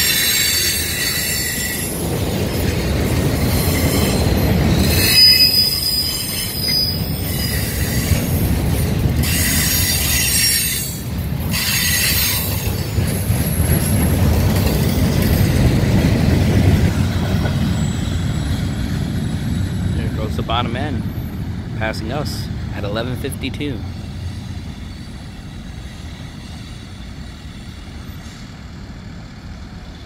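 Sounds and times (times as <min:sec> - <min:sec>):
metallic wheel squeal: 0:00.0 - 0:15.8, 0:17.5 - 0:20.3
freight train rumbling past: 0:00.0 - 0:30.0.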